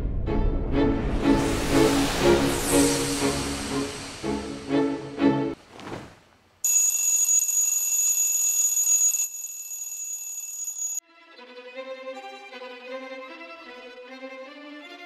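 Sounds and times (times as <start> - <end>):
brief rushing sound: 0.9 - 4.7
high-pitched electronic alarm: 6.7 - 11.0.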